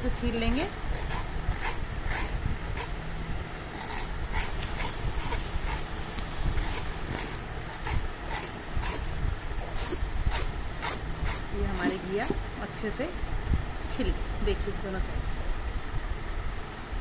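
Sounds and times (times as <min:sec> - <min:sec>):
knife scraping gourd skin: 0:00.9 - 0:03.0, 0:03.7 - 0:05.9, 0:06.6 - 0:09.0, 0:09.6 - 0:12.4.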